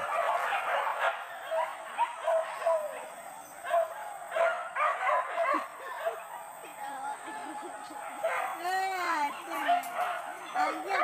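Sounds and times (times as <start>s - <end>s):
dogs yelping and barking: 0.0s - 11.0s.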